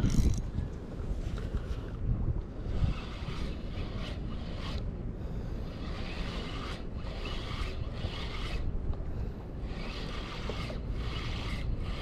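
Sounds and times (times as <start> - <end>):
fishing reel whirring: 2.5 - 12.0.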